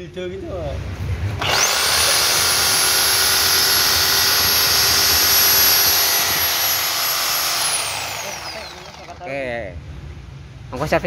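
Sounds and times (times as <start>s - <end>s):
reciprocating saw running: 1.4s - 9.5s.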